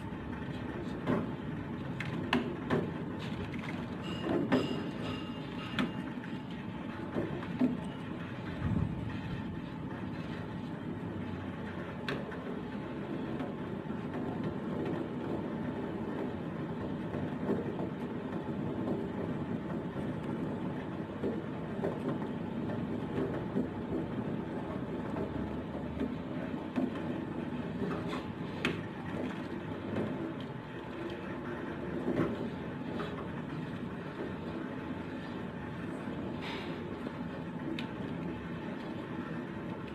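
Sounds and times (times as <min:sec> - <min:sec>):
gas stove burner rumbling: 0:00.0 - 0:39.9.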